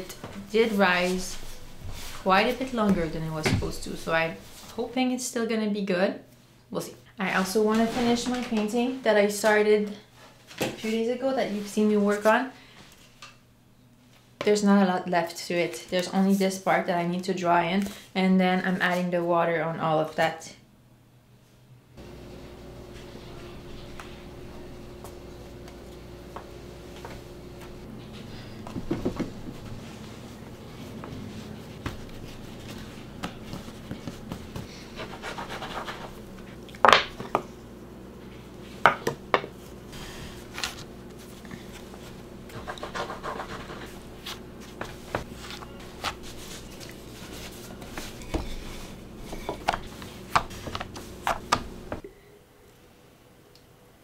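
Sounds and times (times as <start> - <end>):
steady low hum: 20.7 - 54.0.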